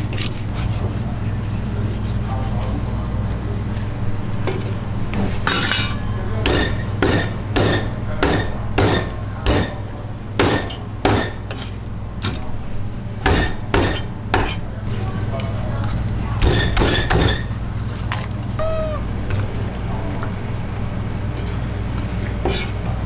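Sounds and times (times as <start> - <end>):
steady low hum: 0.0 - 23.0
cleaver chopping on wooden block: 6.5 - 9.7, 10.4 - 11.4, 13.2 - 14.5.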